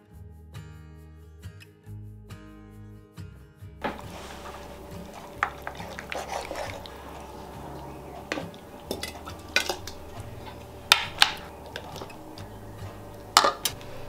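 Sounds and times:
ladle scraping pan: 0:03.8 - 0:14.0
ladle clinking against glass jar: 0:03.9 - 0:14.0.

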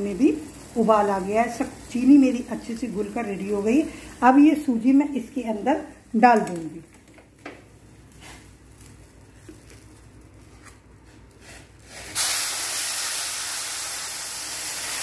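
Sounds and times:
syrup hissing and sizzling: 0:00.0 - 0:06.0, 0:11.2 - 0:15.0.

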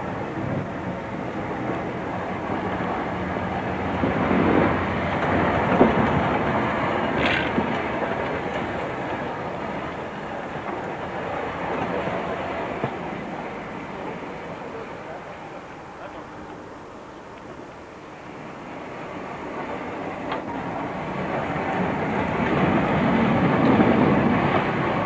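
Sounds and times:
tram rumbling on rails: 0:00.0 - 0:25.0.

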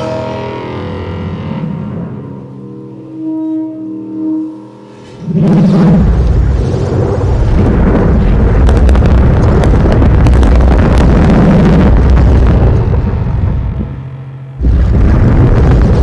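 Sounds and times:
crackling clicks: 0:05.5 - 0:13.9.

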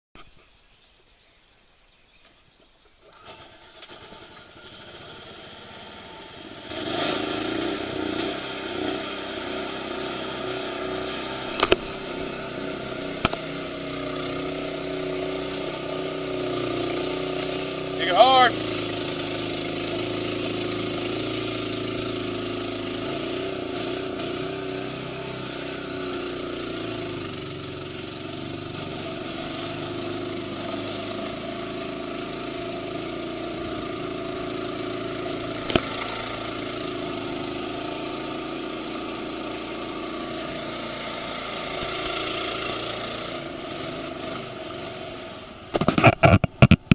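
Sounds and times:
mechanical motor hum: 0:09.8 - 0:38.0.

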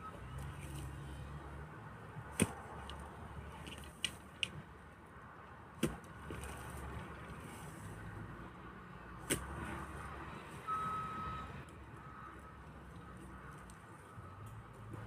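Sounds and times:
pickaxe striking hard soil: 0:02.3 - 0:02.7, 0:05.8 - 0:06.4.

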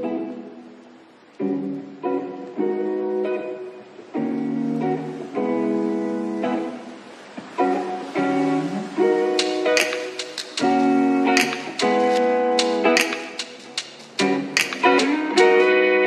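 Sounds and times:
strummed acoustic guitar chords: 0:07.4 - 0:16.0.

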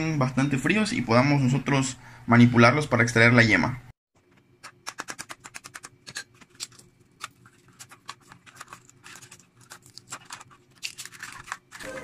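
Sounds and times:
eggshell crackling: 0:04.7 - 0:12.0.

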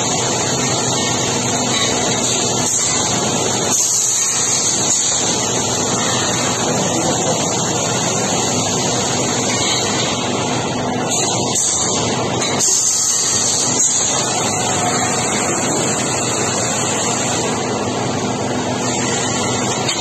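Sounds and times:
factory machinery noise: 0:00.0 - 0:20.0.

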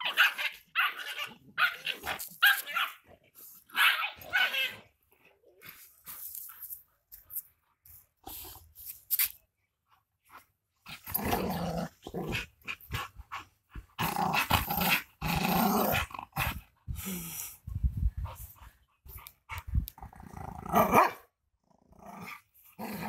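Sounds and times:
dogs growling while play-fighting: 0:10.8 - 0:17.3, 0:19.9 - 0:21.0, 0:21.6 - 0:23.0.

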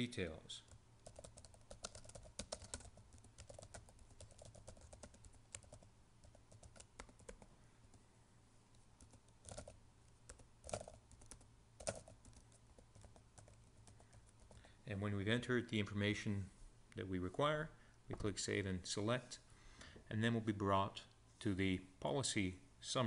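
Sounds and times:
typing on computer keyboard: 0:00.7 - 0:07.5, 0:09.0 - 0:14.7.

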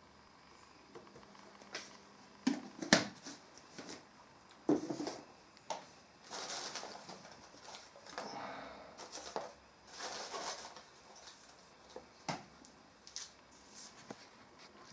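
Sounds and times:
rustling and scuffing: 0:13.1 - 0:14.9.

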